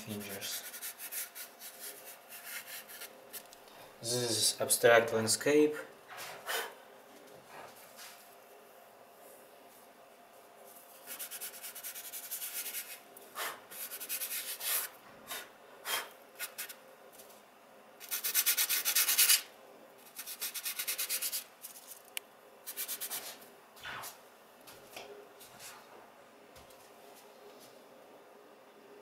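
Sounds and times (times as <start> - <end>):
fingers rubbing on sandpaper: 0.1 - 3.1, 11.1 - 13.0, 18.0 - 19.4, 20.2 - 21.9.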